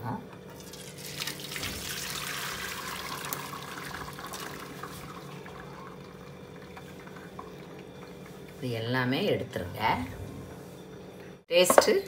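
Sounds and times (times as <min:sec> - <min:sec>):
liquid pouring and splashing: 0:00.6 - 0:08.6.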